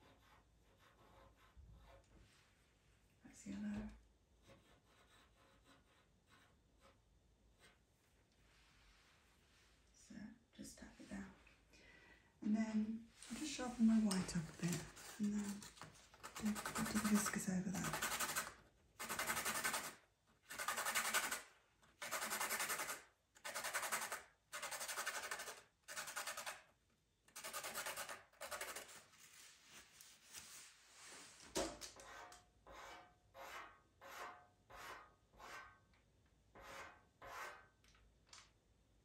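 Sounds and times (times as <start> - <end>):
pencil being sharpened: 14.7 - 26.6, 27.3 - 29.0, 36.6 - 37.7.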